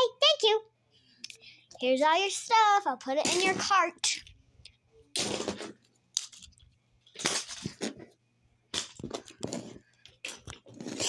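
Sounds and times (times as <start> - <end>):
small toys clattering: 5.3 - 8.0.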